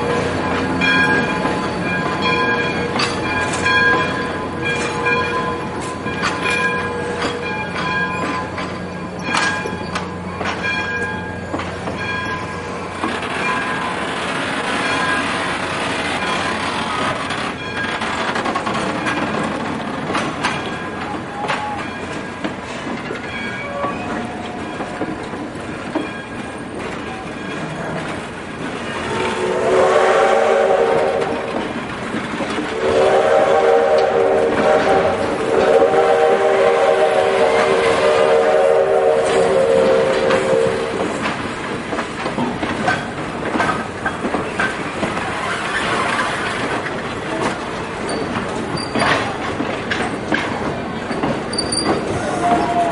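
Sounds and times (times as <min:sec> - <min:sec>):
rail clicks: 0:00.0 - 0:52.9
train wheels rumbling on rails: 0:00.0 - 0:52.9
steam locomotive chime whistle: 0:21.0 - 0:22.2, 0:23.4 - 0:24.8, 0:29.1 - 0:31.5, 0:32.7 - 0:41.1, 0:51.5 - 0:52.9
wheel squeals: 0:48.0 - 0:49.3, 0:51.1 - 0:52.9.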